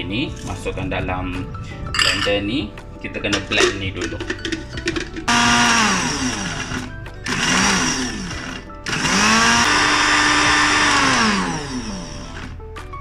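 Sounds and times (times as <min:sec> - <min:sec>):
electric blender motor: 0:05.3 - 0:12.6.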